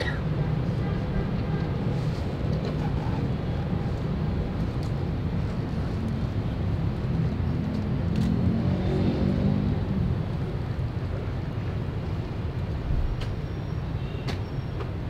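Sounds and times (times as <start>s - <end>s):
city street traffic rumble: 0.0s - 15.0s
engine passing: 5.2s - 11.5s.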